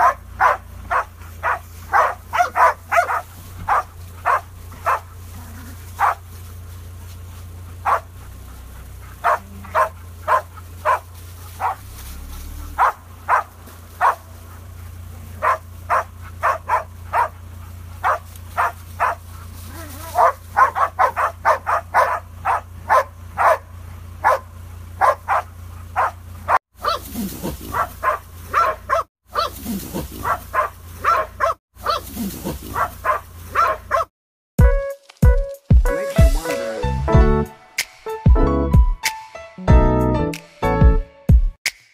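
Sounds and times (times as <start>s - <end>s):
dog barking: 0.0s - 5.2s, 6.0s - 6.3s, 7.7s - 11.9s, 12.7s - 14.6s, 15.3s - 29.6s, 30.2s - 34.1s
vehicle engine idling: 0.0s - 34.1s.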